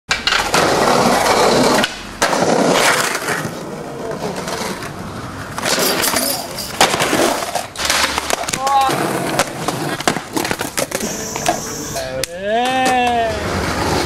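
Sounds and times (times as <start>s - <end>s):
skateboard hitting the ground: 0.1s - 4.9s, 5.5s - 11.6s
skateboard wheels rolling on pavement: 0.1s - 14.0s.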